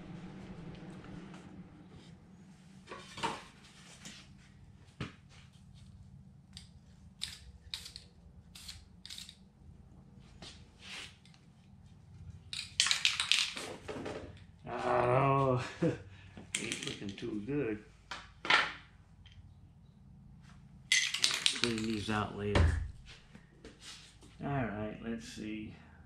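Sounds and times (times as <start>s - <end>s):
spray can hissing: 7.2s - 9.2s
handling clatter: 20.9s - 22.1s.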